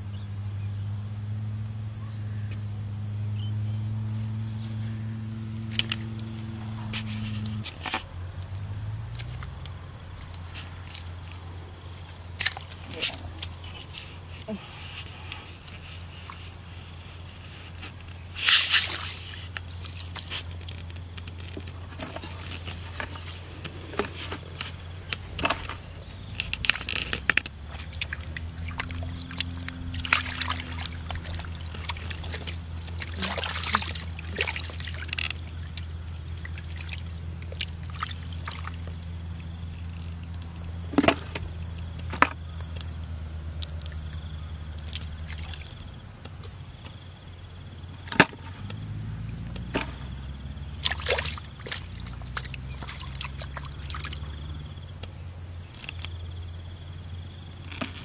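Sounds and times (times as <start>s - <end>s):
hands sloshing in mud: 10.2s - 20.9s, 21.7s - 39.0s, 43.9s - 45.9s, 50.7s - 54.6s
sharp wet slaps: 12.4s - 13.6s, 18.4s - 20.7s, 26.5s - 38.8s, 50.8s - 54.4s.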